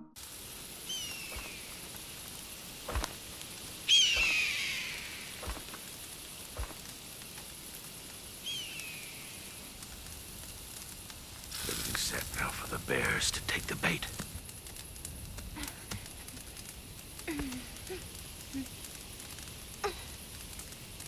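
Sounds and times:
outdoor ambience hiss: 0.0 - 21.0
high falling cries: 0.8 - 1.9, 3.8 - 5.8.

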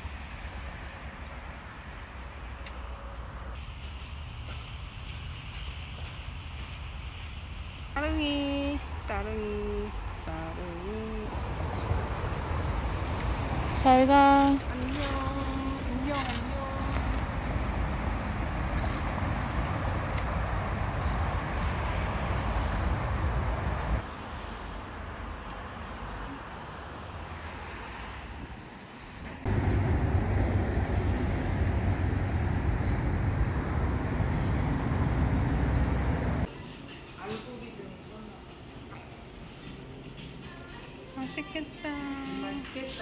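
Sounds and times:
road traffic noise: 0.0 - 43.0.

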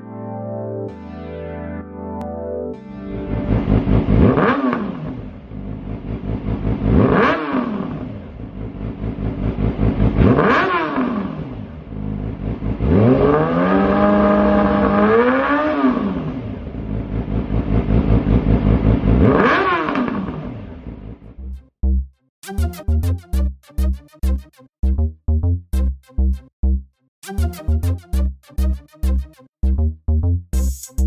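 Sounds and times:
motorcycle engine revving: 3.3 - 21.3.

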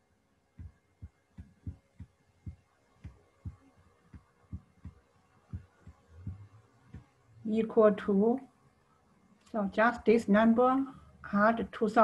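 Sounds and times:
stylus tapping tablet screen: 0.6 - 7.2.

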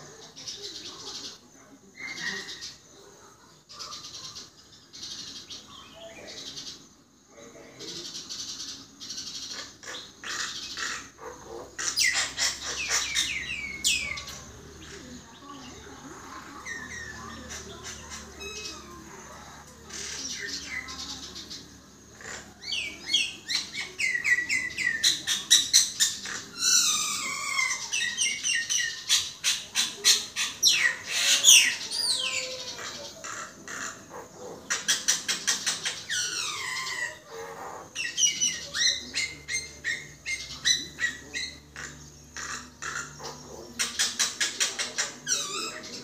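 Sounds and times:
bird singing with clicks and whistles: 37.9 - 46.0.

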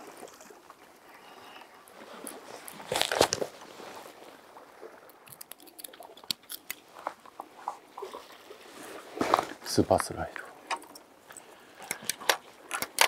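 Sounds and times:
fishing tackle rustle: 1.5 - 13.0
light clicks of metal clip: 11.8 - 13.0.

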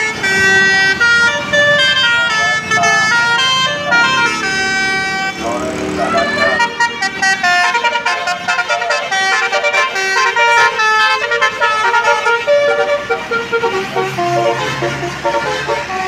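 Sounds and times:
bus melodic horn playing tune: 0.0 - 16.0.

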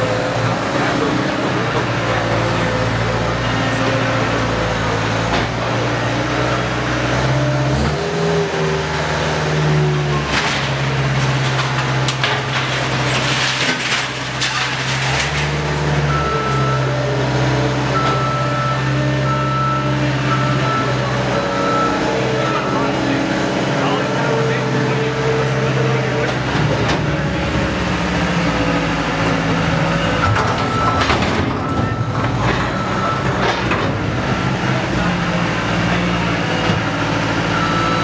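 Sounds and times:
diesel engine revving: 0.0 - 38.0
debris crashing into metal dumpster: 10.2 - 16.2, 30.1 - 34.2.

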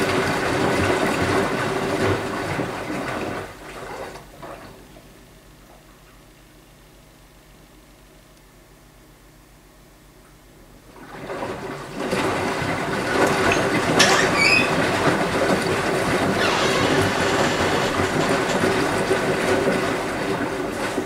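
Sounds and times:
washing machine drum tumbling: 11.0 - 21.0
water sloshing: 13.1 - 20.3
motor hum: 13.6 - 20.3.

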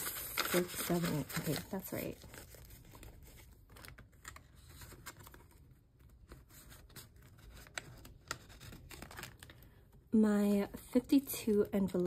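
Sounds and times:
paper money rustling: 0.0 - 9.6.

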